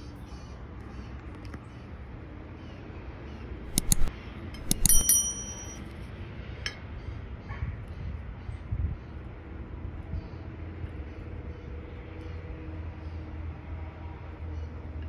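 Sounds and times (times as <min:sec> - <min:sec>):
knife clinking on ceramic plate: 0:03.7 - 0:05.8.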